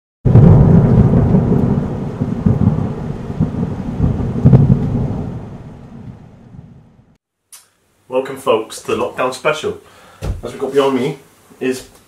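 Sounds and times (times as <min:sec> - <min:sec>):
rain: 0:00.3 - 0:06.8
thunder rumbling and cracking: 0:00.3 - 0:07.2.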